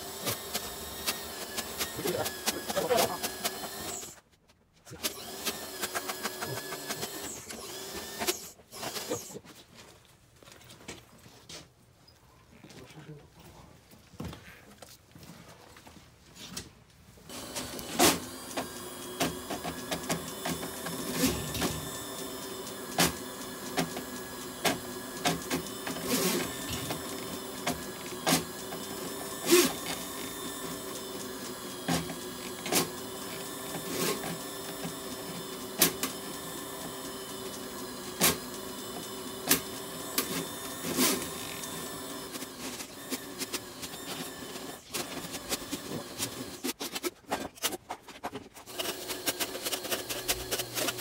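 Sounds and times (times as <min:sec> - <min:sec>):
drain rodder machine running: 0:00.0 - 0:04.1, 0:05.0 - 0:09.3, 0:17.3 - 0:46.6, 0:48.7 - 0:51.0.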